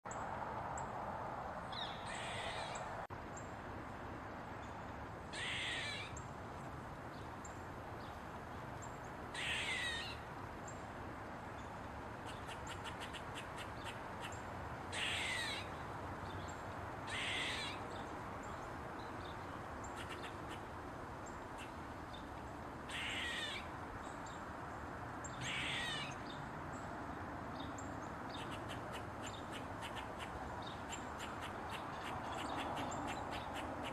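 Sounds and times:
squirrel barking calls: 1.7s - 3.0s, 5.3s - 6.3s, 9.3s - 10.3s, 12.2s - 15.8s, 17.0s - 18.6s, 19.2s - 22.3s, 22.9s - 24.2s, 25.2s - 26.4s, 27.7s - 33.9s.

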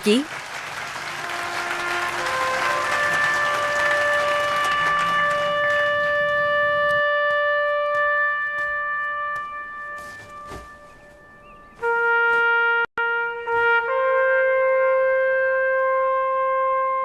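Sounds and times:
crowd applauding: 0.0s - 7.0s
brass chord film music: 0.7s - 17.0s.

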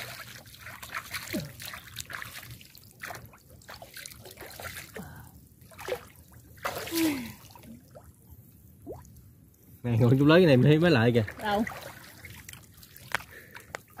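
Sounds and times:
small splashes: 0.0s - 8.2s, 11.0s - 14.0s
muddy water sloshing and trickling: 0.0s - 14.0s
water gurgles: 9.9s - 13.4s.

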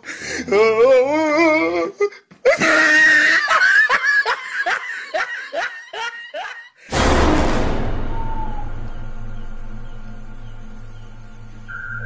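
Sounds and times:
woman's shrieking cackle: 2.5s - 6.8s
loud rush of noise: 6.9s - 9.7s.

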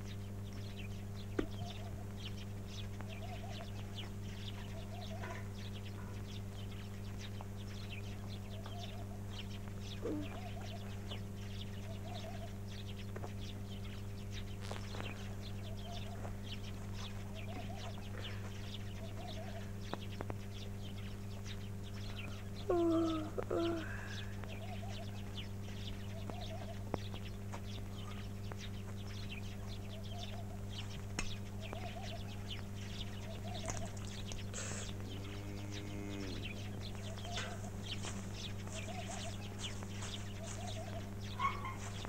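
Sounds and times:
small birds chirping: 0.0s - 42.0s
steady low hum: 0.0s - 42.0s
low animal calls: 9.9s - 11.2s, 11.8s - 12.6s, 17.2s - 19.8s, 22.0s - 25.2s, 33.1s - 37.8s, 38.6s - 39.8s.

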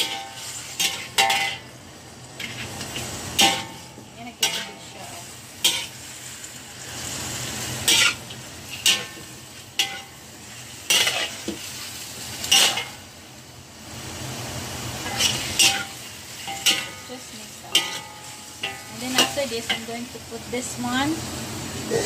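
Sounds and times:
metal ladle scraping a wok: 0.0s - 1.7s, 2.4s - 6.2s, 7.8s - 13.0s, 15.0s - 19.9s
food sizzling: 0.0s - 22.0s.

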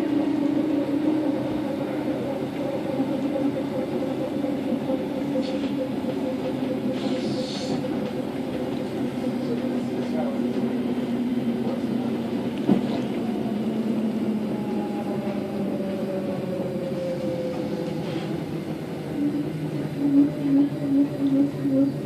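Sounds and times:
train running noise: 0.0s - 22.0s
pulsing low tone: 19.1s - 22.0s.

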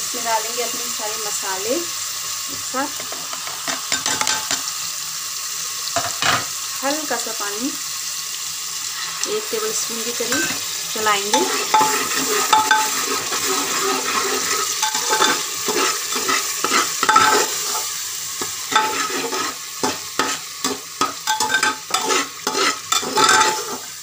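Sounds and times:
masala sizzling in a pot: 0.0s - 24.0s
steel spoon scraping a pot: 10.3s - 10.6s, 11.3s - 24.0s.

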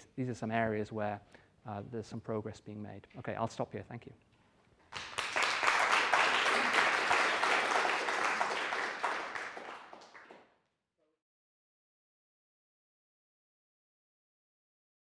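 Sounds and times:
audience applauding: 4.9s - 10.5s.

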